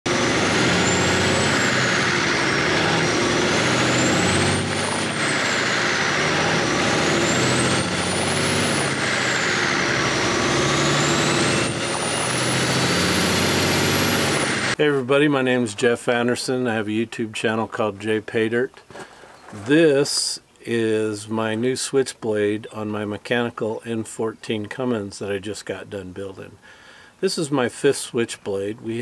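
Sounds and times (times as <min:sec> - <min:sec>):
diesel engine running hard: 0:00.0 - 0:14.8.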